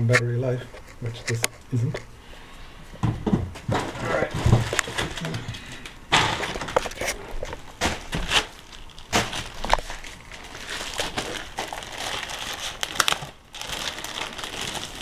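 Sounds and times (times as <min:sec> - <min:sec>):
plastic packaging crinkling: 0:03.7 - 0:15.0.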